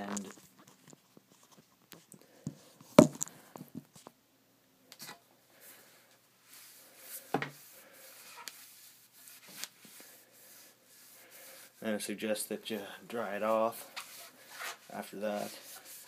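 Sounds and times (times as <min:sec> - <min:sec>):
towel rubbing stick: 0:06.4 - 0:12.0, 0:13.7 - 0:16.0.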